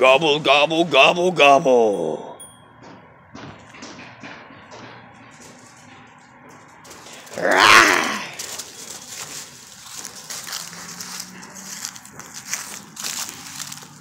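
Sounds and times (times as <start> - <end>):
dry leaves rustling: 6.5 - 14.0
puppy growl-like bark: 7.1 - 8.4.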